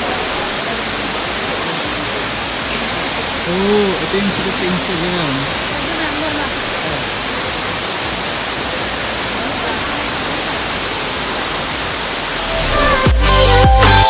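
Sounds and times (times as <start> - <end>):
waterfall pouring into pool: 0.0 - 14.0
electronic music with deep bass: 12.4 - 14.0.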